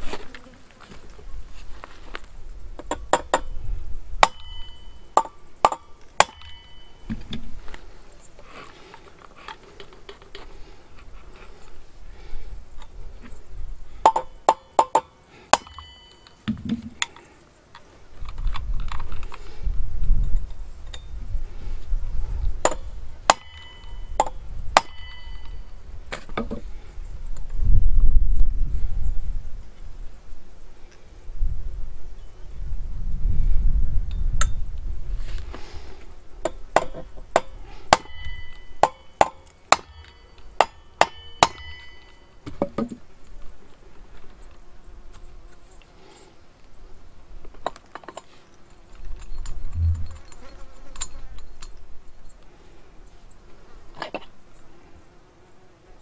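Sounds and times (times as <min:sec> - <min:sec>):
hammer striking steel punch: 0:37.4 - 0:42.1.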